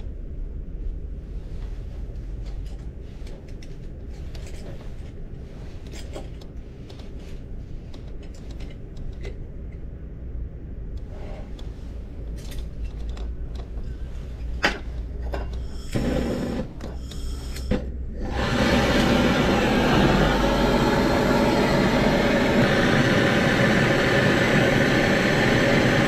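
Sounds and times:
steady low hum: 0:00.0 - 0:26.0
brazing torch hissing: 0:15.6 - 0:26.0.

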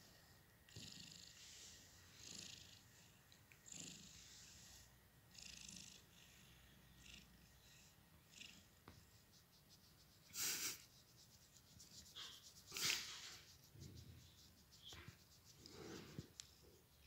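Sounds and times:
cat purring: 0:00.7 - 0:17.0
hand rustling through fur: 0:09.0 - 0:17.0.

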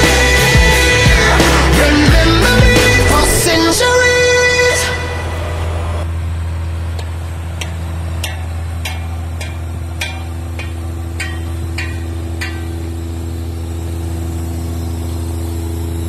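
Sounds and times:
background music: 0:00.0 - 0:06.0
tractor diesel engine running: 0:00.0 - 0:16.0.

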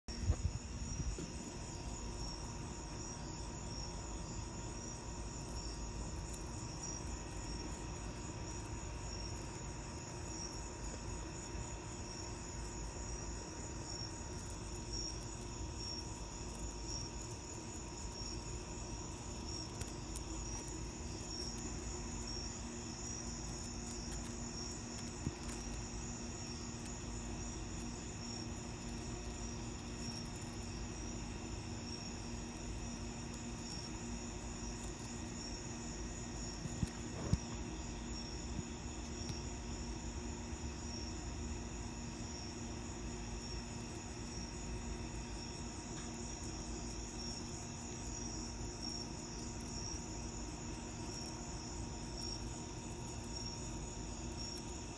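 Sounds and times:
insects trilling: 0:00.1 - 0:54.9.

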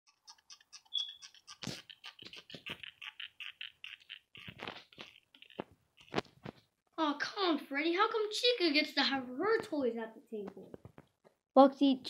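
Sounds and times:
fidget spinner rattling: 0:00.1 - 0:06.1.

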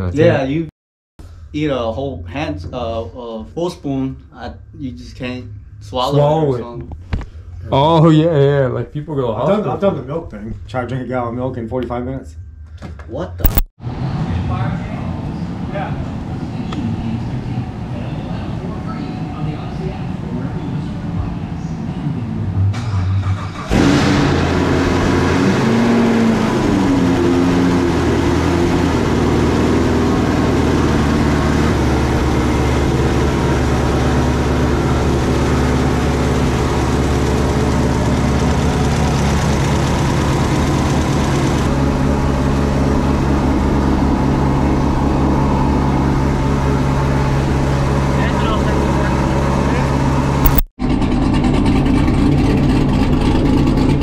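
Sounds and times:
car engine starting and idling: 0:20.4 - 0:54.0.

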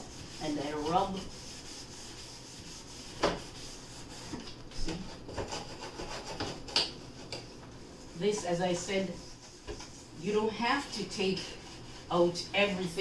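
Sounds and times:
scouring pad scrubbing shelf: 0:00.0 - 0:05.2, 0:08.0 - 0:13.0.

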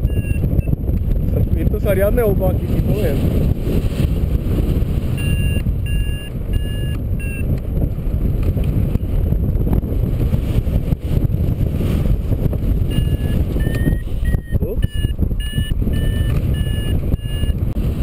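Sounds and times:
variometer beeping: 0:00.0 - 0:00.9, 0:05.1 - 0:07.6, 0:12.9 - 0:17.8
wind rushing over microphone: 0:00.0 - 0:18.0.

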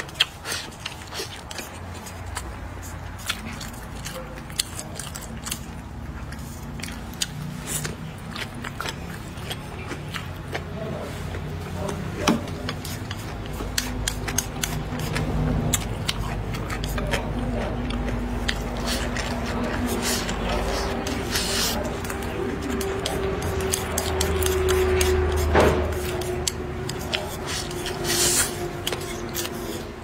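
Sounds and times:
chewing and lip smacks: 0:00.0 - 0:30.0
steady low hum: 0:00.0 - 0:30.0
chopsticks clicking on a plate: 0:22.0 - 0:27.9.

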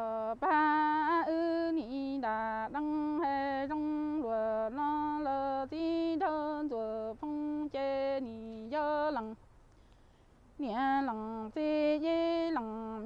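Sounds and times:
woman singing unaccompanied: 0:00.0 - 0:09.5, 0:10.5 - 0:13.0
singer breathing: 0:09.7 - 0:10.4.

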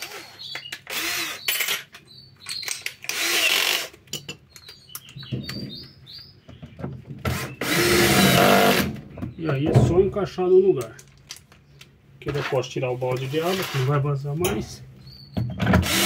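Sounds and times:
cordless drill driving screw: 0:00.0 - 0:01.8, 0:03.0 - 0:04.0, 0:07.3 - 0:08.9, 0:15.8 - 0:16.0.

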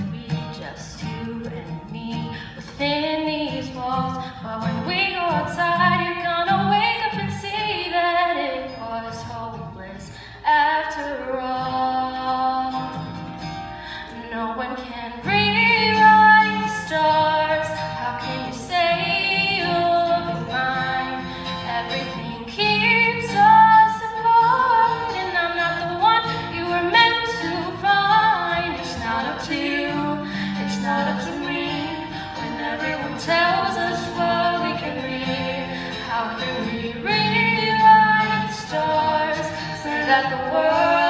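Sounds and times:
strummed acoustic guitar: 0:00.0 - 0:41.0
girl and boy singing: 0:14.2 - 0:41.0.

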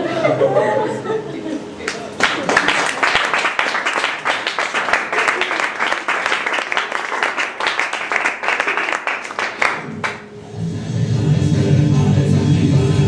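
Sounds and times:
audience applauding: 0:01.9 - 0:10.3.

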